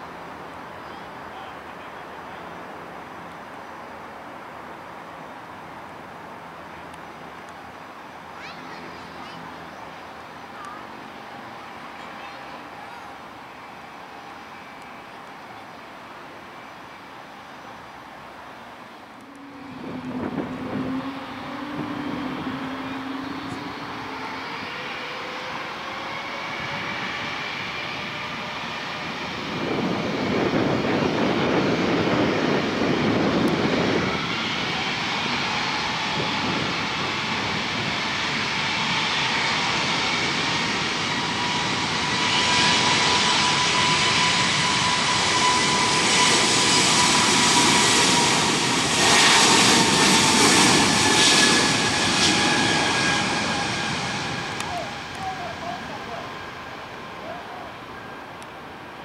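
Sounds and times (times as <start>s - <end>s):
jet engines whining: 19.0s - 59.0s
deep jet rumble: 19.2s - 25.0s, 25.7s - 58.0s.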